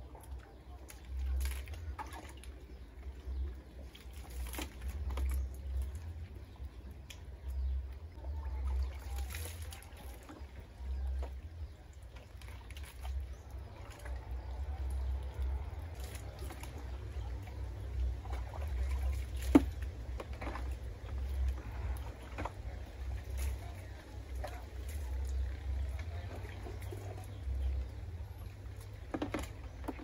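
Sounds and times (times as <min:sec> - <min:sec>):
water splashing and trickling: 0:00.0 - 0:30.0
low rumble: 0:04.6 - 0:30.0.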